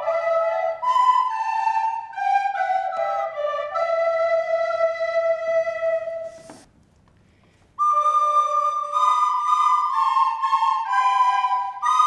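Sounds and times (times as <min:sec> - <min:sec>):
recorder ensemble playing: 0:00.0 - 0:06.7, 0:07.8 - 0:12.0.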